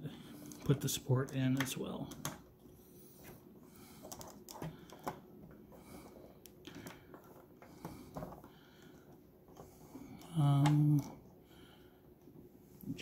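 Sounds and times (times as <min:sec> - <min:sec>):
plastic parts clicking and tapping: 0:00.5 - 0:02.5, 0:04.0 - 0:05.6, 0:06.4 - 0:11.1.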